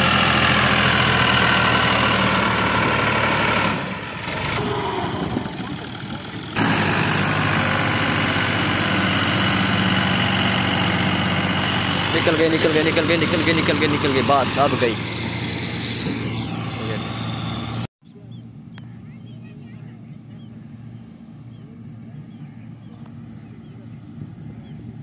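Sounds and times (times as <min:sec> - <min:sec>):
tractor diesel engine under load: 0:00.0 - 0:17.9.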